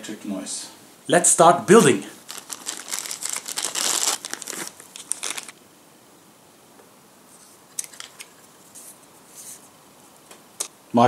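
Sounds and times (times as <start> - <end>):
plastic bag crinkling: 2.2 - 5.6.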